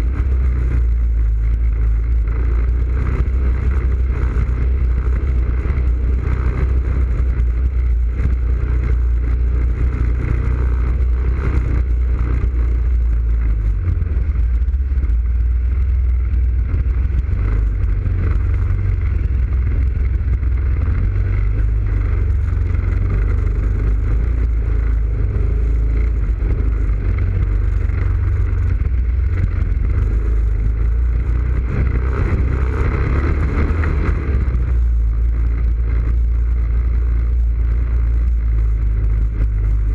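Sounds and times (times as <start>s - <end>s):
atv engine running: 0.0s - 39.9s.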